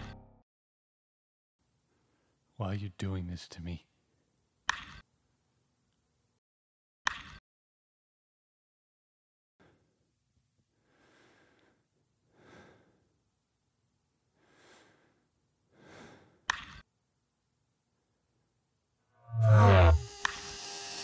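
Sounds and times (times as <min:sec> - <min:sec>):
faint slow breaths: 0:01.8 - 0:02.5, 0:09.6 - 0:13.3, 0:14.2 - 0:16.5.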